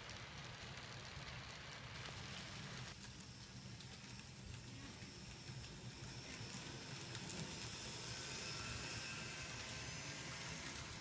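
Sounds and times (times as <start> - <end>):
model train wheels hissing on rails: 0.0 - 11.0
thin motor whine: 3.2 - 11.0.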